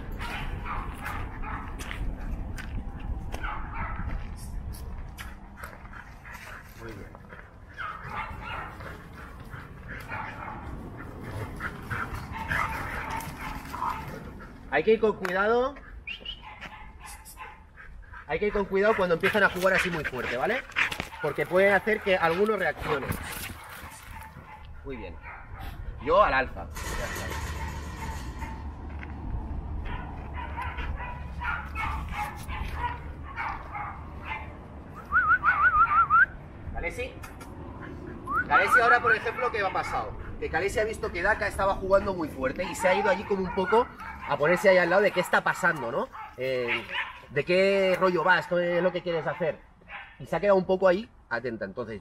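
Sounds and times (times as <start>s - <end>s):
dogs panting: 0.0s - 34.8s, 37.3s - 50.2s
dogs whining and yelping: 7.7s - 14.6s, 15.9s - 18.2s, 29.9s - 36.2s.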